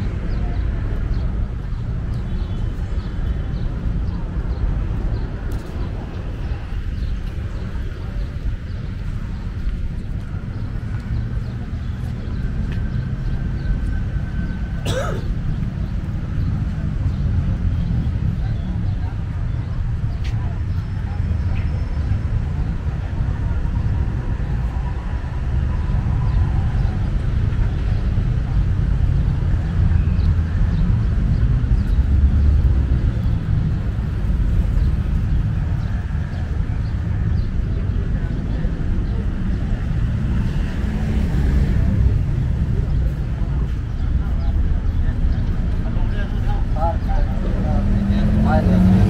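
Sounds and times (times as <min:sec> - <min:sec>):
low city rumble: 0:00.0 - 0:49.0.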